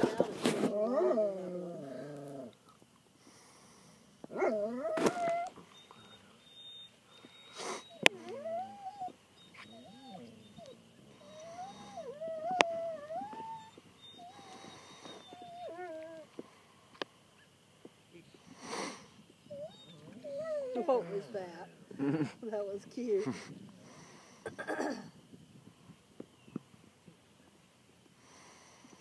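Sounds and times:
dog whining: 0:00.0 - 0:02.6, 0:04.3 - 0:16.3, 0:19.5 - 0:21.3.

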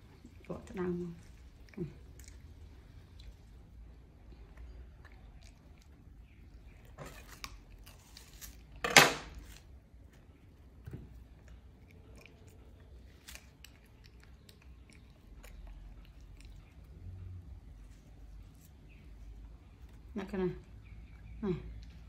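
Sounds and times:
monkey chewing: 0:11.2 - 0:19.3.

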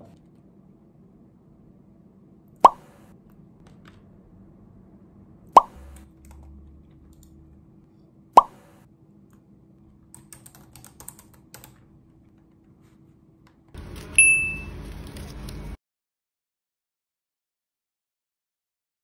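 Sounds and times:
noisy background: 0:00.0 - 0:15.8
rising pop sound effect: 0:02.6 - 0:03.0, 0:05.5 - 0:06.1, 0:08.4 - 0:08.8
laptop keyboard typing: 0:05.8 - 0:07.4, 0:10.0 - 0:12.7
bright chime effect: 0:14.2 - 0:14.7.

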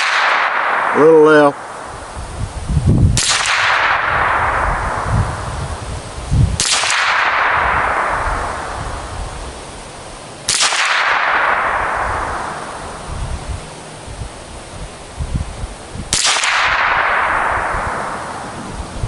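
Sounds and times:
rifle shots: 0:00.0 - 0:02.2, 0:03.2 - 0:05.8, 0:06.6 - 0:09.6, 0:10.4 - 0:13.2, 0:16.1 - 0:19.0.

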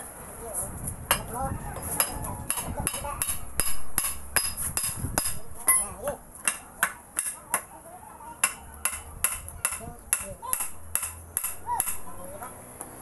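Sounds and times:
hammer striking steel: 0:02.0 - 0:07.7, 0:08.4 - 0:12.3.

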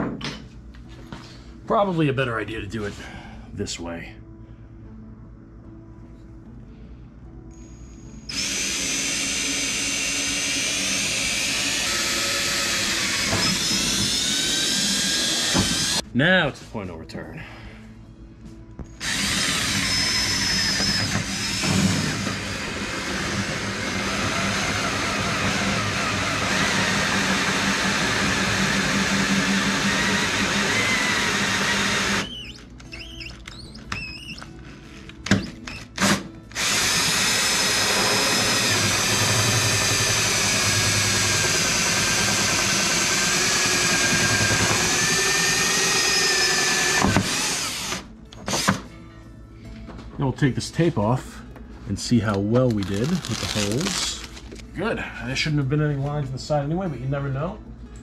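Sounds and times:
cordless drill whining: 0:08.2 - 0:16.0, 0:18.9 - 0:34.5, 0:35.2 - 0:48.8.

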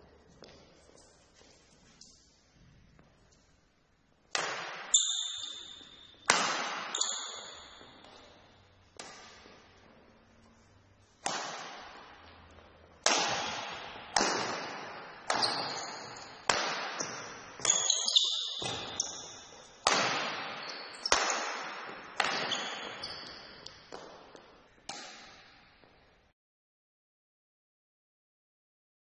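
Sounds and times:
shuttlecock hit by rackets: 0:04.3 - 0:08.4, 0:09.0 - 0:09.8, 0:11.0 - 0:25.6
shoe squeaks: 0:04.9 - 0:06.3, 0:06.9 - 0:08.6, 0:15.3 - 0:16.5, 0:17.6 - 0:19.9, 0:20.5 - 0:21.2, 0:22.2 - 0:24.0.

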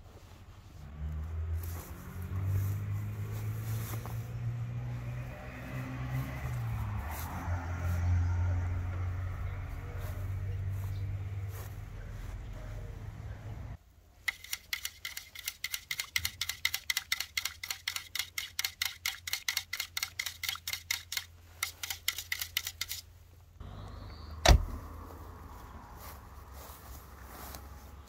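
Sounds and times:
rapid sharp clicks: 0:14.2 - 0:23.0.

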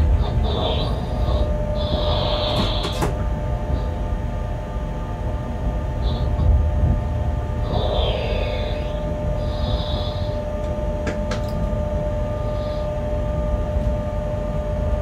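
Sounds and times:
faint steady hum: 0:00.0 - 0:15.0
wheels rumbling on rail: 0:00.0 - 0:15.0.

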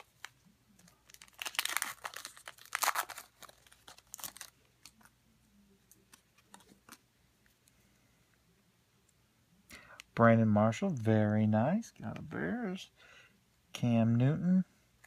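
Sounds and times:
card pack wrapper crinkling: 0:00.0 - 0:05.1
soft clicks of cards handled: 0:04.8 - 0:08.4.

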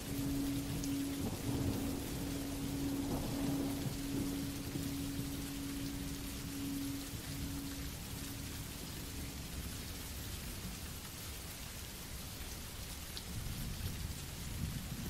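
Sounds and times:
low rumble: 0:00.0 - 0:09.7
rain hissing on a surface: 0:00.0 - 0:15.0.

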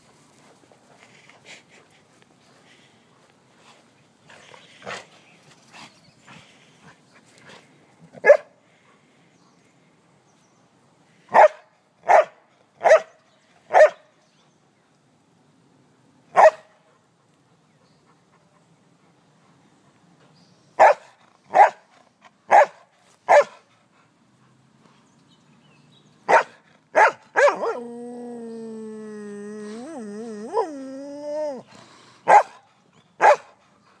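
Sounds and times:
dog barking: 0:08.2 - 0:08.5, 0:11.3 - 0:13.1, 0:13.7 - 0:14.0, 0:16.4 - 0:16.7, 0:20.8 - 0:21.8, 0:22.5 - 0:23.6, 0:26.3 - 0:27.8, 0:32.3 - 0:32.6, 0:33.2 - 0:33.5
dog howling: 0:27.4 - 0:31.7.

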